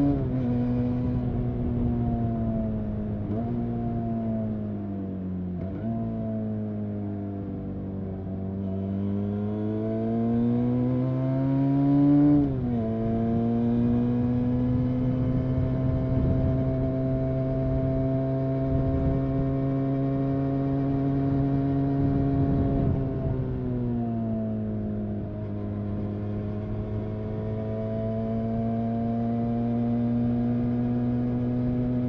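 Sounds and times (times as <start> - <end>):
motorcycle engine revving: 7.8 - 32.0.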